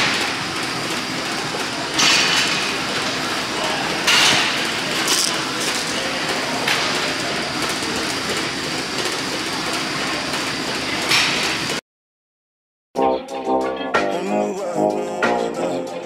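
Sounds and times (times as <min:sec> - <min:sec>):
treadmills whirring: 0:00.0 - 0:11.8.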